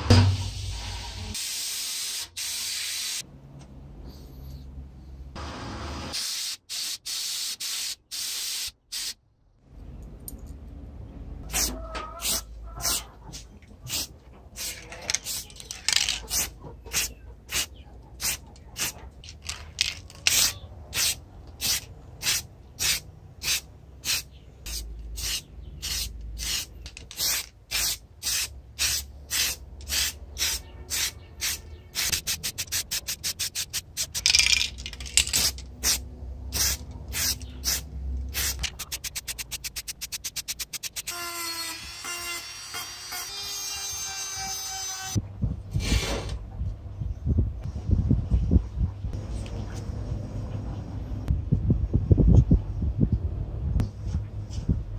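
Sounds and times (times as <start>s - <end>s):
spray can bursts: 1.3s - 3.2s, 6.1s - 9.2s, 11.5s - 13.0s, 16.2s - 18.9s, 20.3s - 34.6s, 35.3s - 41.1s.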